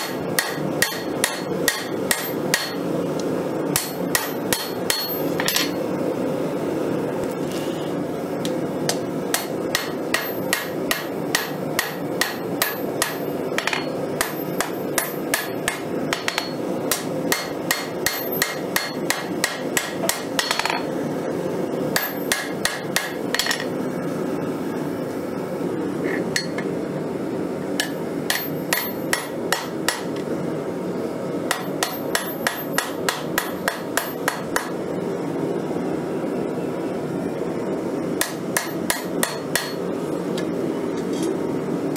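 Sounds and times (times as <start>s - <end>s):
hammer striking steel on anvil: 0.0s - 2.9s, 3.7s - 5.8s, 8.9s - 20.9s, 22.0s - 23.7s, 27.8s - 30.2s, 31.5s - 34.8s, 38.2s - 39.8s.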